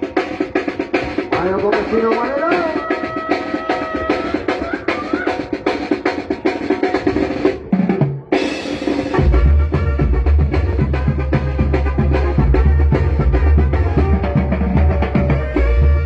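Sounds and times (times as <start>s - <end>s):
bass drum and snare beat: 0.0s - 16.0s
brass band playing live: 0.0s - 16.0s
saxophones holding notes: 9.2s - 16.0s.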